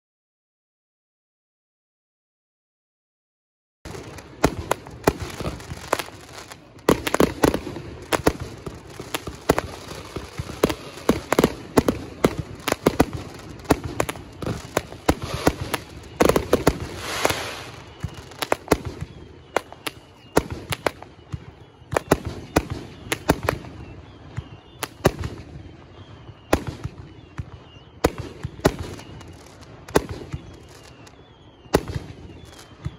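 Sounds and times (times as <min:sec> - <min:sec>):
firework bursting bangs: 0:03.9 - 0:32.9
rushing hiss: 0:14.4 - 0:15.9, 0:16.8 - 0:18.4.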